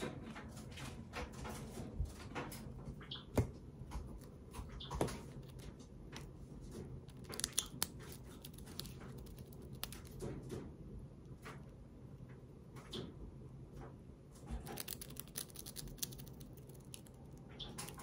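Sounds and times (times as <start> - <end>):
bird chirping: 3.0 - 3.4, 4.6 - 5.1, 17.4 - 18.0.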